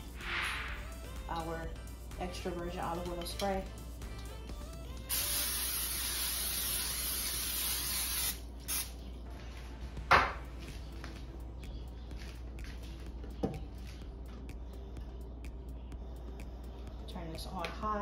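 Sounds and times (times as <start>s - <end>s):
cooking spray hissing: 5.1s - 8.9s.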